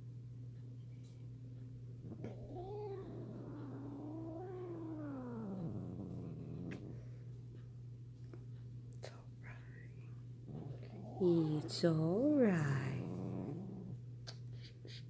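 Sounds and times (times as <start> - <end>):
cat yowling: 2.3 - 5.9.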